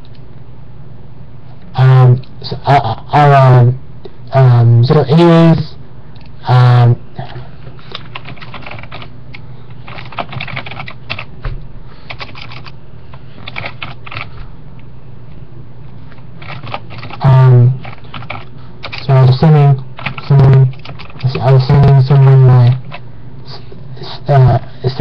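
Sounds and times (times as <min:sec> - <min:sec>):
keyboard typing clicks: 0:08.0 - 0:11.3, 0:13.4 - 0:14.3, 0:17.8 - 0:19.0.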